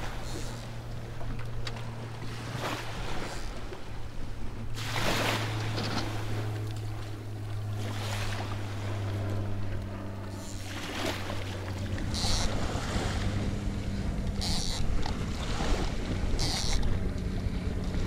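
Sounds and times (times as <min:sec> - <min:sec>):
steady low hum: 0:00.0 - 0:18.0
waves washing onto sand: 0:04.8 - 0:06.6.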